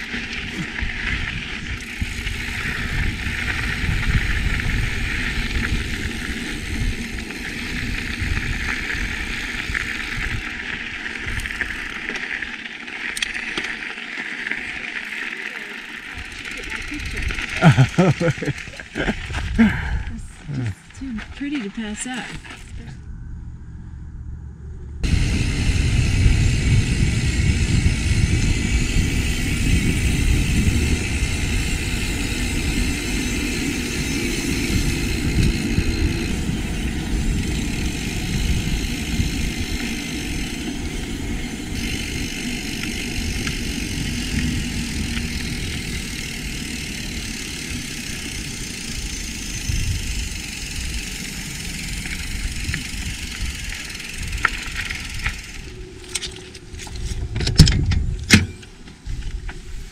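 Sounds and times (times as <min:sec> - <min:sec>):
wind buffeting microphone: 0:00.0 - 0:11.9, 0:16.2 - 0:59.9
bike tyres rumbling on trail: 0:00.0 - 0:59.9.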